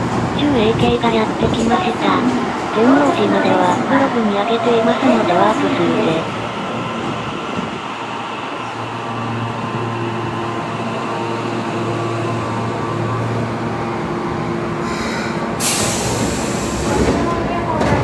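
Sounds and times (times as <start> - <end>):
subway train rumbling to a stop: 0.0 - 18.0.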